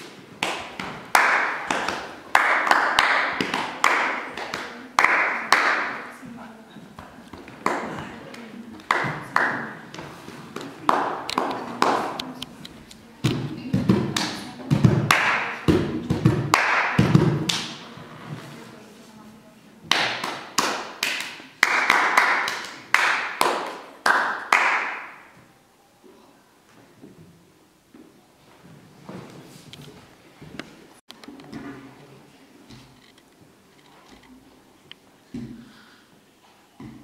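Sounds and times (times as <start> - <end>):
hand claps and slaps: 0.0 - 6.0, 7.0 - 12.4, 13.2 - 17.8, 19.9 - 25.4.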